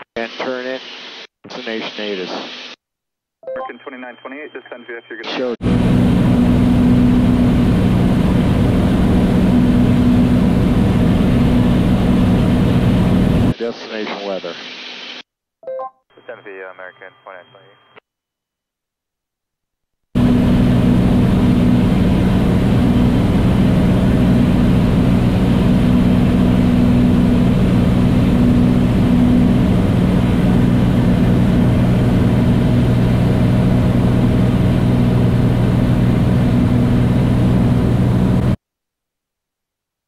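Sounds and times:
airplane engine and propeller droning: 5.6s - 13.5s, 20.2s - 38.6s.

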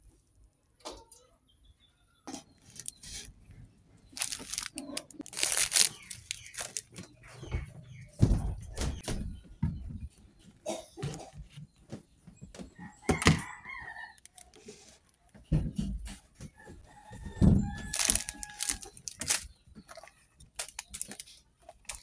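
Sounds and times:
foil packaging crinkling: 2.6s - 3.1s, 4.2s - 6.9s, 17.7s - 19.5s, 20.6s - 22.0s.

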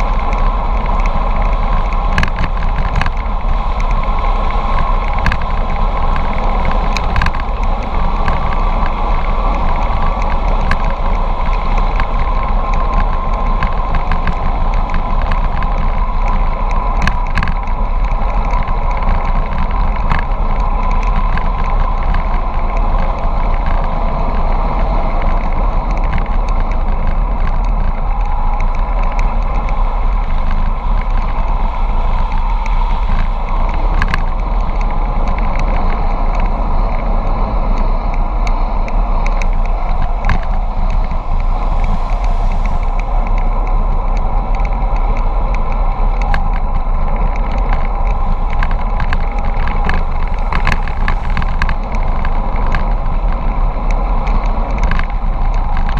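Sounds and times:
bicycle rattling over bumps: 0.0s - 55.9s
tyre noise on tarmac: 0.0s - 55.9s
wind rushing on microphone: 0.0s - 55.9s.

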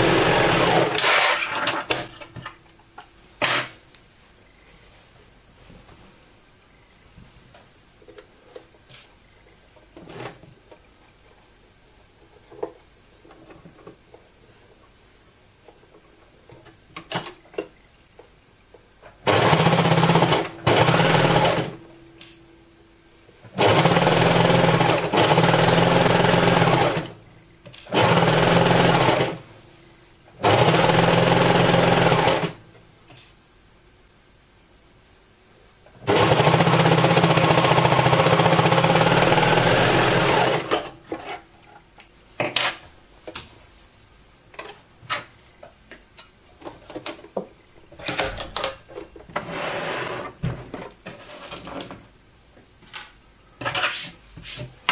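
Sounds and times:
overlock machine sewing: 0.0s - 2.0s, 19.2s - 21.8s, 23.5s - 27.2s, 27.8s - 29.4s, 30.4s - 32.6s, 36.0s - 41.0s.

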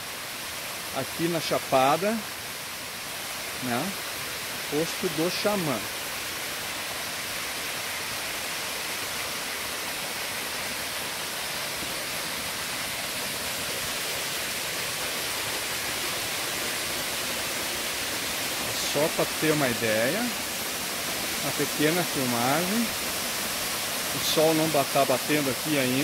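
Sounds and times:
small waterfall pouring: 0.0s - 26.0s.

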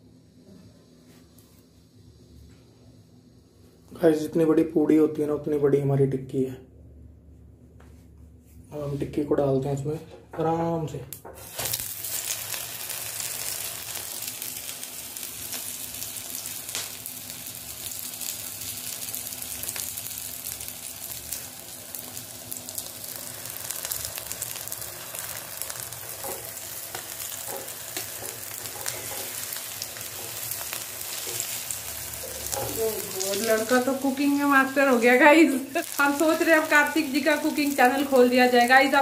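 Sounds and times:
food frying in oil: 11.4s - 39.0s.

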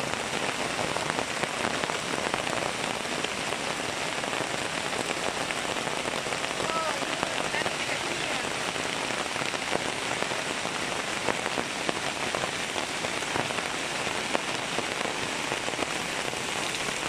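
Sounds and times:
steady rain falling: 0.0s - 17.0s.

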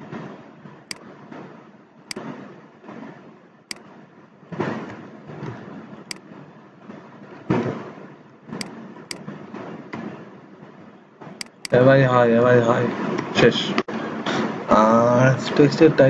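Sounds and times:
computer mouse clicks: 11.4s - 11.8s
keyboard keystrokes: 11.4s - 11.8s.

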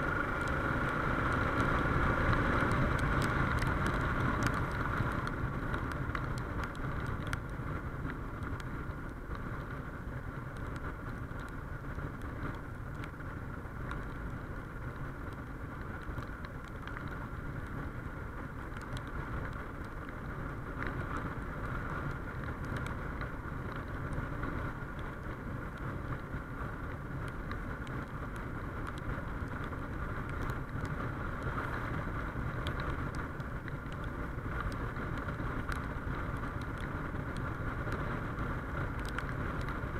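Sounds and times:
motorcycle engine cruising: 0.0s - 12.6s
wind and road noise: 0.0s - 39.9s.

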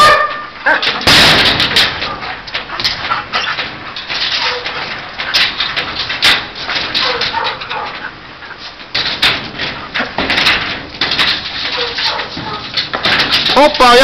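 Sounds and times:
paws knocking on metal gate: 0.0s - 14.0s
dogs whining and yelping: 4.3s - 5.4s, 7.0s - 8.2s, 11.7s - 12.7s.

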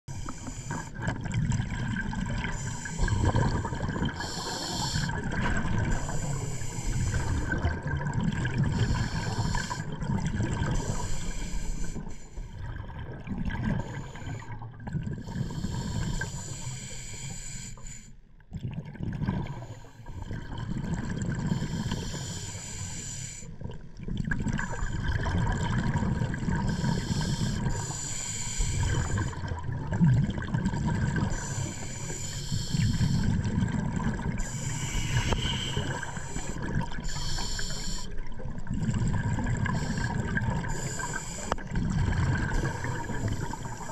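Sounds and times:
diver breathing through regulator: 0.1s - 1.1s, 2.3s - 8.0s, 8.6s - 12.6s, 13.7s - 14.6s, 15.2s - 18.2s, 21.4s - 23.6s, 26.5s - 29.6s, 31.0s - 38.4s, 39.0s - 43.9s
bubbles rushing: 0.8s - 4.3s, 5.0s - 6.2s, 7.1s - 11.0s, 12.6s - 14.0s, 18.5s - 21.6s, 23.6s - 27.0s, 28.8s - 31.5s, 33.2s - 37.1s, 38.2s - 43.9s.

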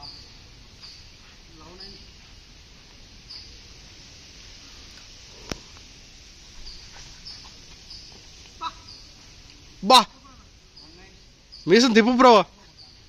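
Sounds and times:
high bird chirps: 0.0s - 2.2s, 3.2s - 3.8s, 6.6s - 13.0s
background hiss: 0.0s - 13.0s.

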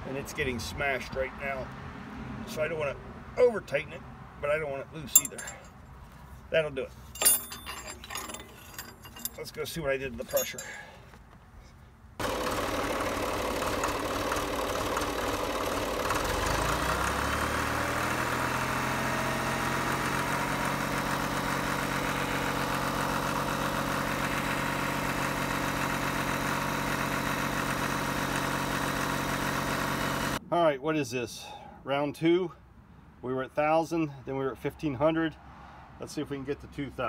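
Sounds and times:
backhoe engine running: 12.2s - 30.4s.

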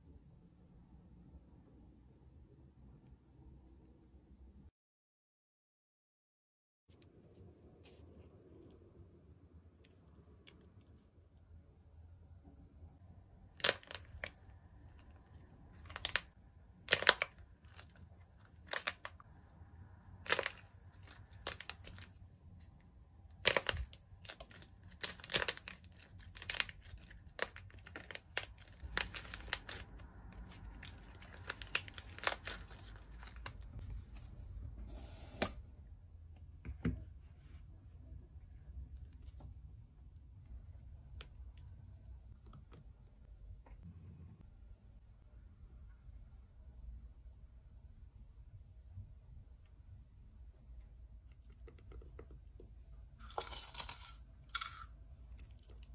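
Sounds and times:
chocolate shell cracking: 23.3s - 33.6s.

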